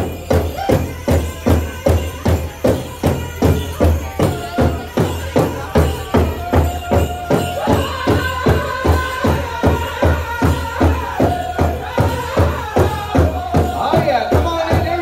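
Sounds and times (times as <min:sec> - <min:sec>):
high held singing voices: 0:00.0 - 0:15.0
large drum beats: 0:00.0 - 0:15.0.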